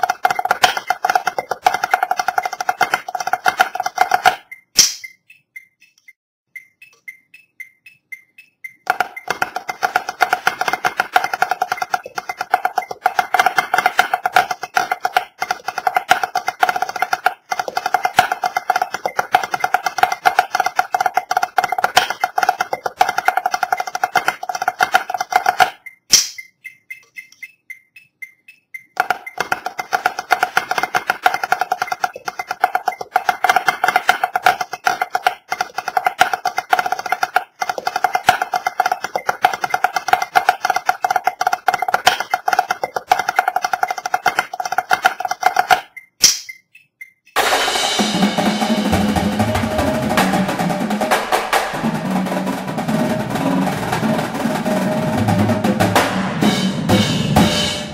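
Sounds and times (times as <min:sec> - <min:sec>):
snare drum rolls: 0:00.0 - 0:05.0, 0:08.9 - 0:26.4, 0:29.0 - 0:45.9, 0:47.4 - 0:57.9
light regular ticks: 0:04.5 - 0:08.8, 0:25.8 - 0:29.0.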